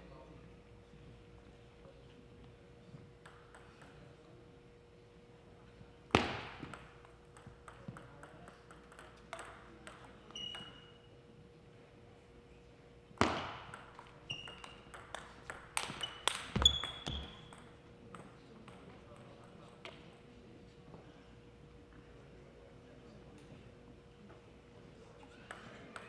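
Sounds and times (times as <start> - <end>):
table tennis ball clicking: 3.2 - 3.9, 6.7 - 10.8, 13.6 - 18.8
shoe squeaks: 10.3 - 11.1, 14.2 - 14.9, 15.9 - 17.5
sharp echoing ball hits: 13.2 - 13.9.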